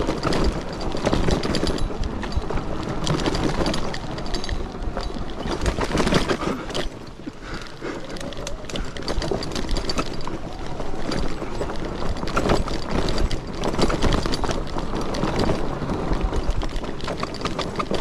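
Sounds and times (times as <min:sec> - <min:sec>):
bike rattling over bumps: 0:00.0 - 0:18.0
tires crunching on dirt trail: 0:00.0 - 0:18.0.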